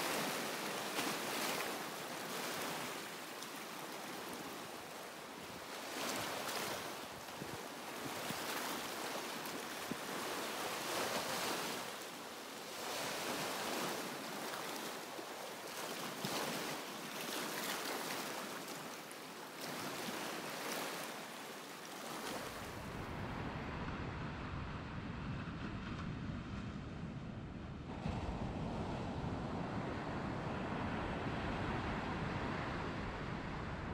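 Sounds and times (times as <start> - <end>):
surf rumbling on beach: 0.0 - 16.9, 22.1 - 33.9
waves breaking on rocks: 0.0 - 23.2.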